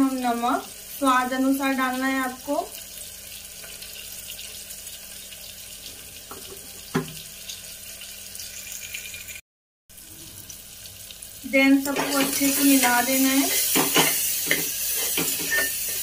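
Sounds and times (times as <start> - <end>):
masala sizzling in oil: 0.0 - 16.0
knock on pressure cooker: 6.3 - 7.2.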